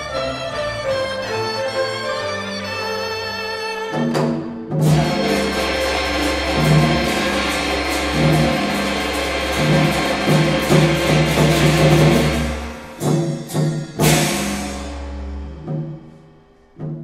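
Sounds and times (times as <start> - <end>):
traditional orchestra playing: 0.0 - 16.2
drums and gongs beating: 4.0 - 16.2.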